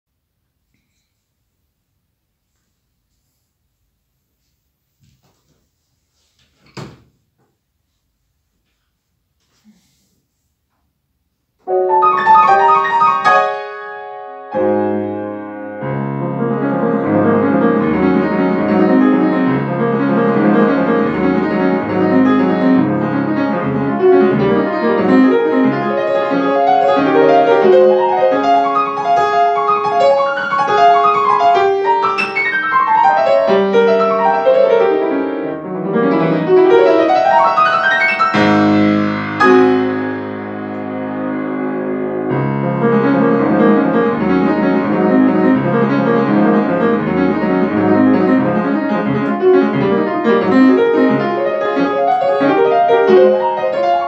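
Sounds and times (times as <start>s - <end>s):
solo grand piano: 11.6s - 54.0s.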